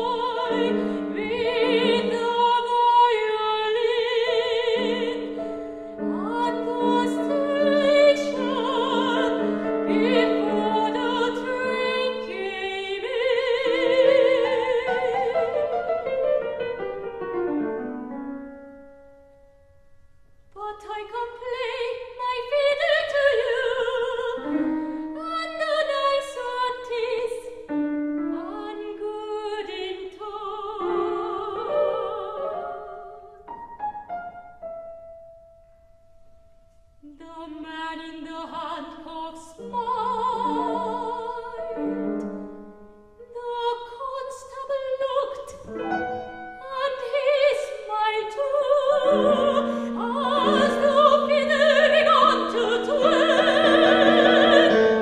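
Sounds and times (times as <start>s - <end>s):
soprano singing with vibrato: 0.0s - 16.6s, 20.6s - 33.4s, 37.0s - 55.0s
grand piano: 0.0s - 55.0s.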